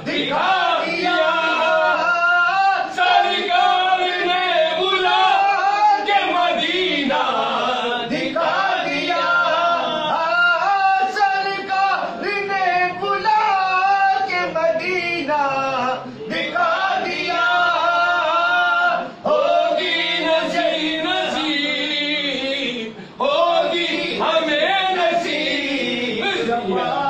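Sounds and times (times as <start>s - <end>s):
man singing devotional song: 10.0s - 27.0s.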